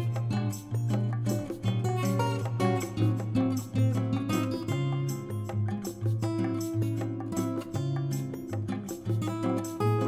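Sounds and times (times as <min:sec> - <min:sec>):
steady percussive beat: 0:00.0 - 0:10.0.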